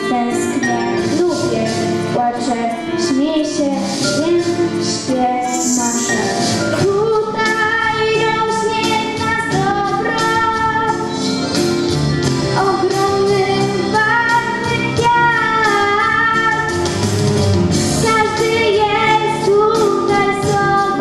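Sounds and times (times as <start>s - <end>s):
girl singing into microphone: 0.0s - 11.4s, 12.5s - 16.8s, 18.0s - 21.0s
instrumental accompaniment: 0.8s - 14.3s.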